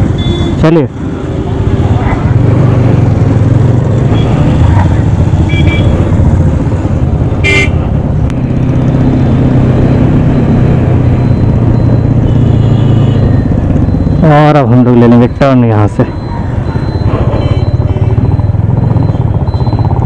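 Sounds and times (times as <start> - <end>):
motorcycle engine running: 0.0 - 14.9, 16.1 - 20.0
vehicle horn toot: 5.5 - 6.0, 7.4 - 7.8
faint short beeps: 13.2 - 20.0.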